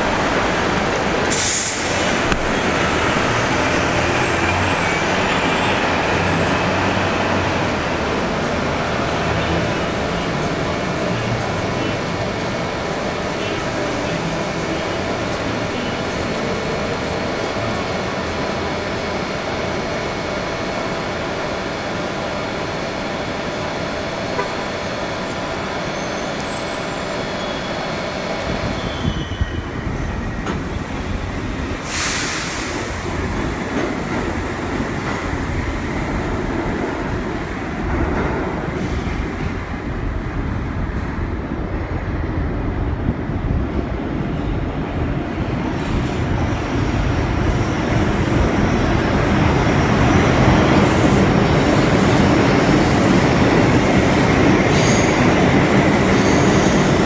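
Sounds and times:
subway train in station: 0.0 - 57.0
train rumbling on elevated track: 0.0 - 57.0
sharp hiss: 31.8 - 33.1.

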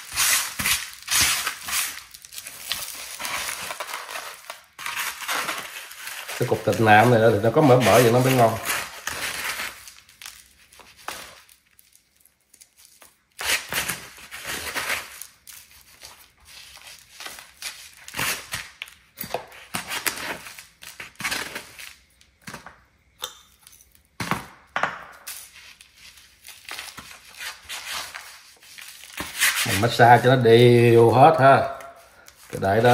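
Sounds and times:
hands rubbing raw meat: 6.4 - 8.7.

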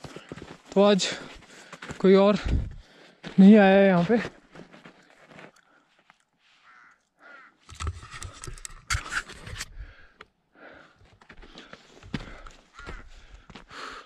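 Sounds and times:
person panting: 0.0 - 3.3, 9.7 - 14.0.

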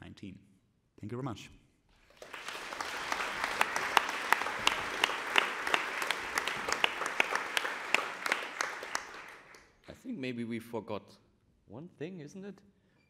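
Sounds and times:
audience applause: 2.1 - 9.6
loud single claps: 2.2 - 9.7.

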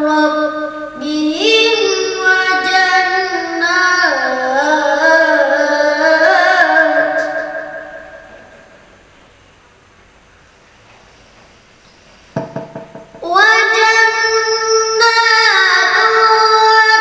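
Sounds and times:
boy chanting melodic recitation: 0.0 - 8.8, 13.2 - 17.0.

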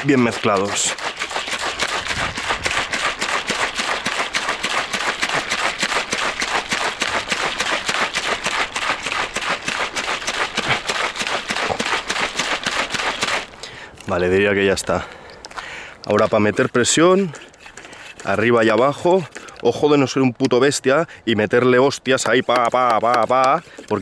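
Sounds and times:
liquid sloshing in shaken tank: 0.0 - 13.5.

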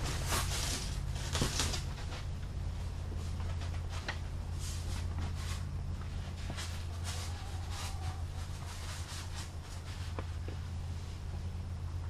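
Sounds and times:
styrofoam boards rustling: 0.0 - 2.3, 3.5 - 10.4
steady low hum: 0.0 - 12.0.

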